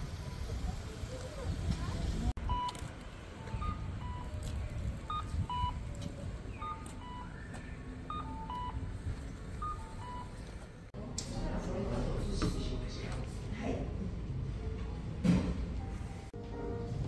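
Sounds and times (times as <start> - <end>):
low street noise rumble: 0.0 - 17.0
crossing signal beeping tune: 3.4 - 4.4, 5.0 - 5.9, 6.5 - 8.9, 9.6 - 10.4.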